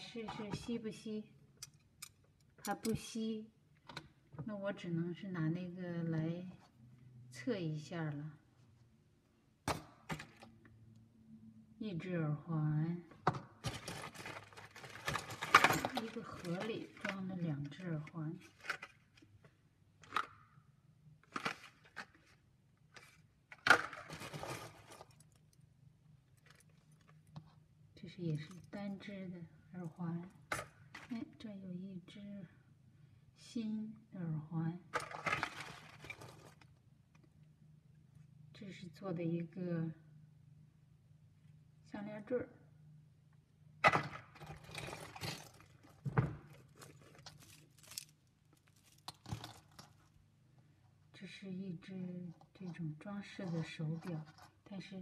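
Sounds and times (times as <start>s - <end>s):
plastic crackling: 13.7s - 17.4s, 44.2s - 50.1s.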